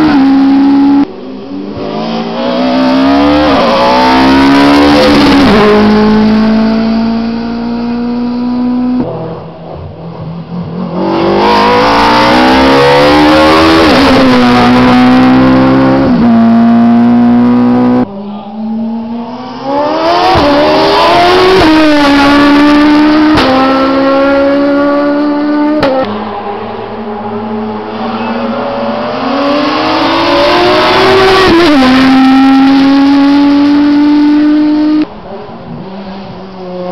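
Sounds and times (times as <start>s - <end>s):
race car engines passing: 0.0s - 36.9s.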